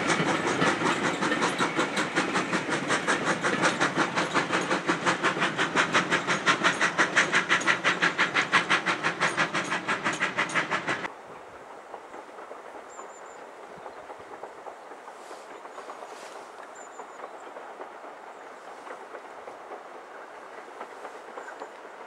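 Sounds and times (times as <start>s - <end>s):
steam locomotive chuffing: 0.0s - 22.0s.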